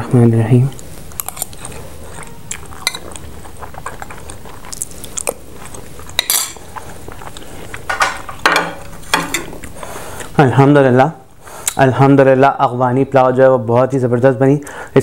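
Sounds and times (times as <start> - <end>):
spoon clinking against plate: 6.2 - 6.6.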